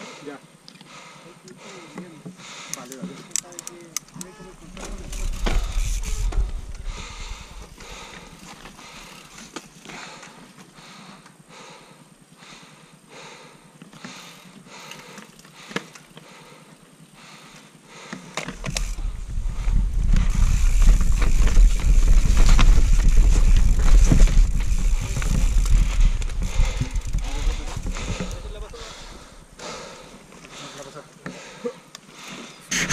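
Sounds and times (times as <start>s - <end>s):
bike rattling over bumps: 4.4s - 10.2s, 18.2s - 30.7s
wind buffeting microphone: 4.6s - 9.0s, 18.6s - 29.6s
tyres crunching over dirt and stones: 18.4s - 30.6s.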